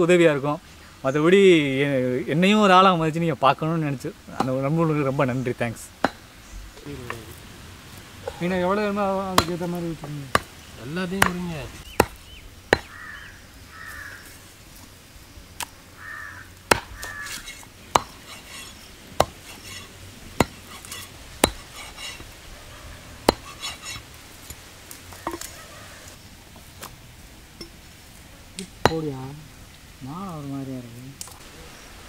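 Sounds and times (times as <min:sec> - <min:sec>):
cleaver chopping on wooden block: 0:09.4 - 0:10.5, 0:11.2 - 0:13.0, 0:16.7 - 0:22.2, 0:23.2 - 0:23.8
crows cawing: 0:12.7 - 0:14.4, 0:15.9 - 0:17.6.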